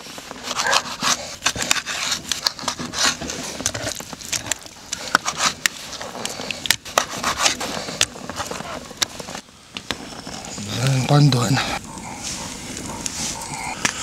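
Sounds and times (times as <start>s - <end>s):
knife scraping through fish: 0.0s - 9.4s.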